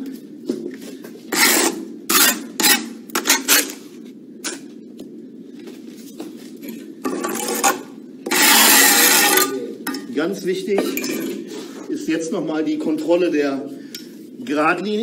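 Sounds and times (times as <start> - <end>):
trowel scraping mortar: 1.3 - 3.8, 7.1 - 9.6.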